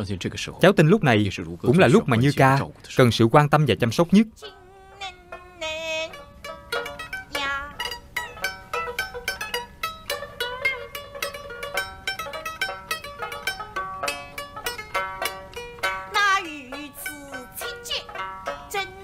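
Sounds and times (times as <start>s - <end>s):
plucked string instruments: 0.7s - 19.0s
person singing: 4.4s - 6.2s, 7.3s - 8.0s, 16.1s - 19.0s.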